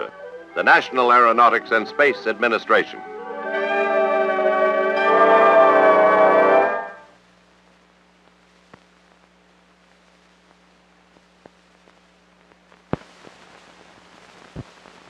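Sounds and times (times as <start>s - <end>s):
faint film hiss: 7.2s - 15.0s.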